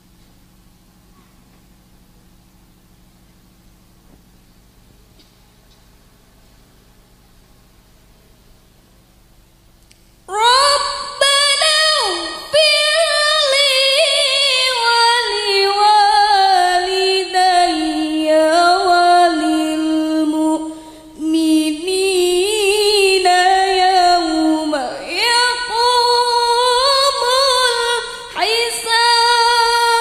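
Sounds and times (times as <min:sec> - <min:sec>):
woman chanting melodically: 0:10.3 - 0:30.0.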